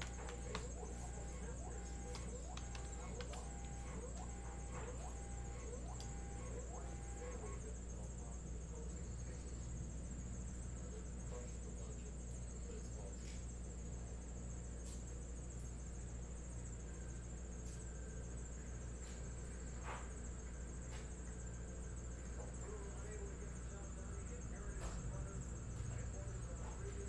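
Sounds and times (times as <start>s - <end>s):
faint clicks: 0.0s - 6.8s.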